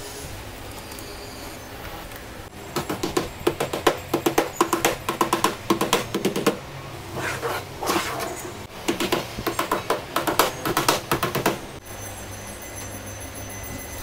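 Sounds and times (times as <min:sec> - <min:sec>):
hammer tapping nails through metal: 0:02.8 - 0:06.6, 0:08.9 - 0:11.6.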